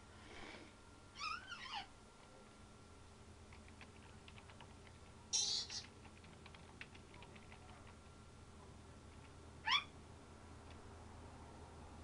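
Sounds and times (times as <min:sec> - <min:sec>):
parrot call with bending pitch: 0:05.3 - 0:05.8, 0:09.6 - 0:09.9.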